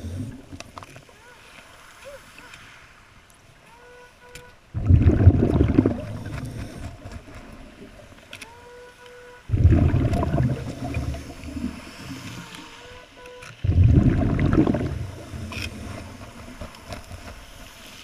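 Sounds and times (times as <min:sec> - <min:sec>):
rush of bubbles underwater: 0:04.8 - 0:07.3, 0:09.5 - 0:12.4, 0:13.6 - 0:16.6.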